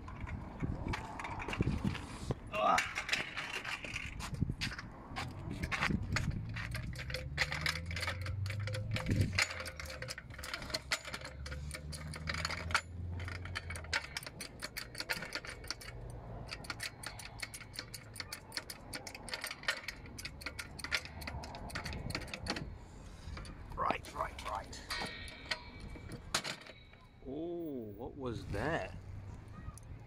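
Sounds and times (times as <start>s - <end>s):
floor jack clicking and rattling: 2.8s - 22.7s.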